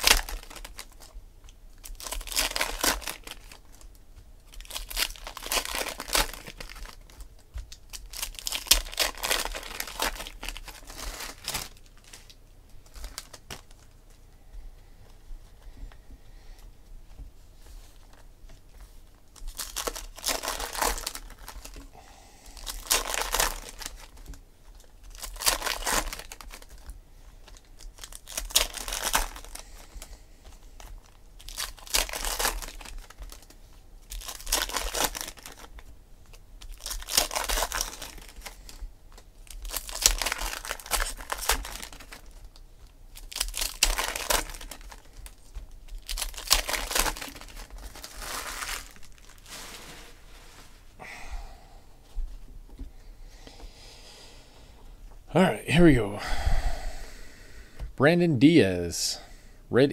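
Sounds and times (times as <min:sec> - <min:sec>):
foil wrappers tearing and crinkling: 0:00.0 - 0:13.9, 0:19.3 - 0:21.8, 0:22.4 - 0:50.7.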